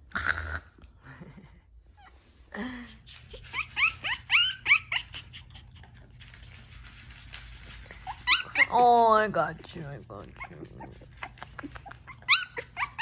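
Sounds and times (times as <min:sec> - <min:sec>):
puppy whimpering squeaks: 0:03.2 - 0:05.7, 0:07.9 - 0:08.9, 0:10.3 - 0:13.0.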